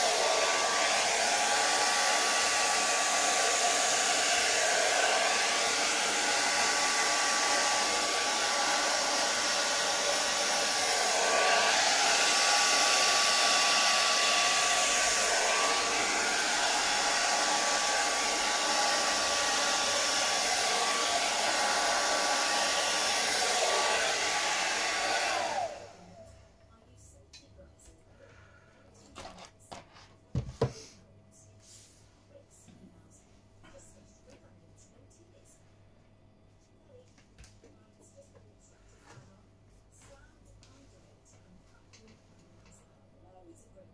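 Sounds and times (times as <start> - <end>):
hair dryer running: 0.0 - 26.3.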